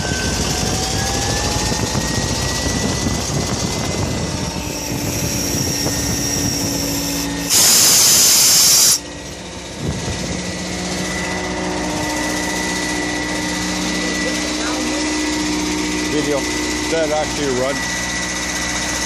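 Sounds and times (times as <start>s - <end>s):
generator engine running: 0.0s - 19.0s
loud hiss: 4.8s - 9.0s.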